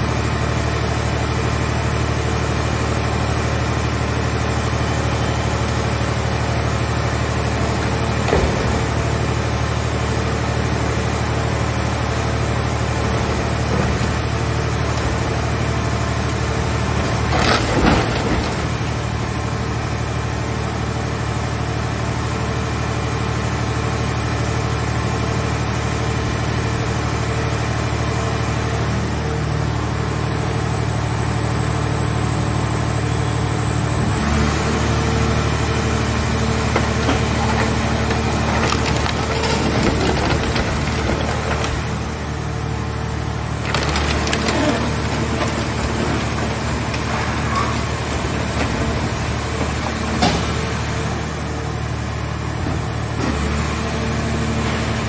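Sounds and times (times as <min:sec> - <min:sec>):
hydraulic unit humming and whining: 0:00.0 - 0:55.0
car body crunching in press: 0:36.6 - 0:42.3, 0:43.5 - 0:51.0.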